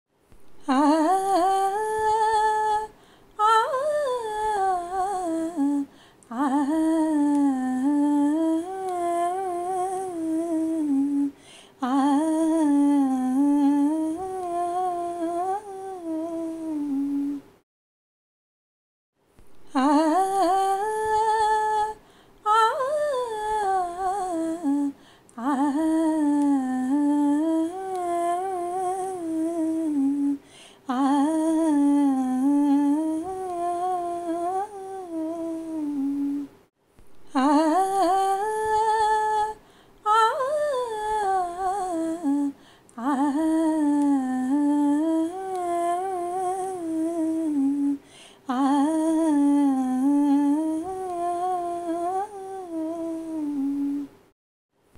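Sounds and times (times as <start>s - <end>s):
woman humming: 0.6s - 17.5s, 19.7s - 36.5s, 37.3s - 54.1s.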